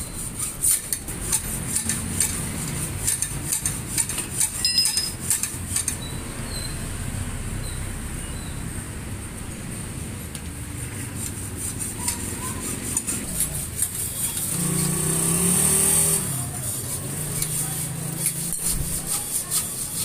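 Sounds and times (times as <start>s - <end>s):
short scraping strokes: 0.0s - 6.1s, 10.7s - 20.0s
vehicle engine passing: 5.7s - 20.0s.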